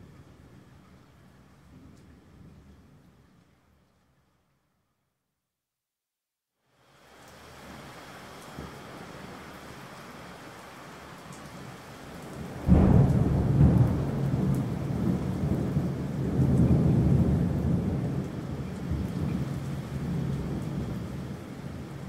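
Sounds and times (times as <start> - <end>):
steady rain: 0.0 - 5.1, 6.6 - 22.0
thunderclap rumbling: 12.4 - 22.0.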